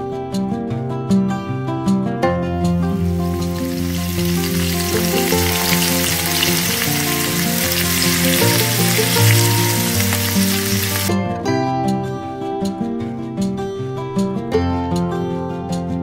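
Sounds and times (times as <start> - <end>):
acoustic guitar music: 0.0 - 16.0
meat sizzling in a pan: 2.9 - 11.1.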